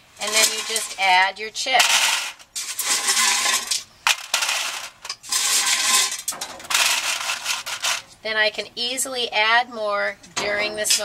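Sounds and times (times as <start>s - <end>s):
wood chips clattering in foil pan: 0.2s - 8.1s.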